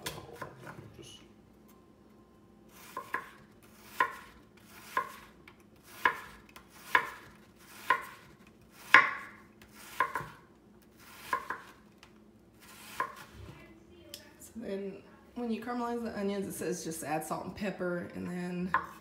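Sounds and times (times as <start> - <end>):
knife chopping on wooden board: 2.9 - 5.3, 5.9 - 10.4, 11.1 - 11.8, 12.7 - 13.3.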